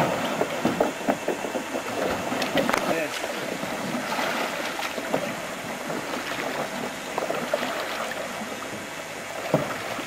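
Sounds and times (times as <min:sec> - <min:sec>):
paddle splashes and drips: 0:00.0 - 0:10.0
water trickling and splashing: 0:00.0 - 0:10.0.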